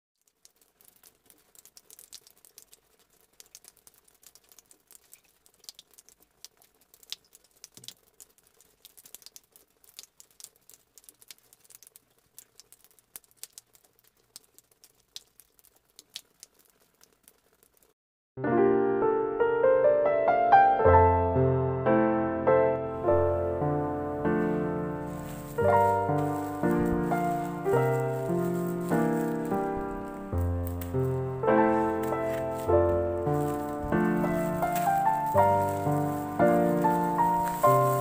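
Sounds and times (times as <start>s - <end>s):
light clicks and crackles: 0.2s - 18.0s, 24.4s - 38.0s
piano music: 18.4s - 38.0s.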